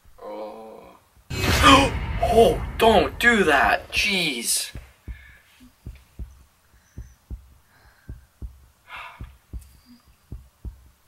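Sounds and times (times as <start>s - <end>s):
heartbeat thumps: 4.7s - 11.0s.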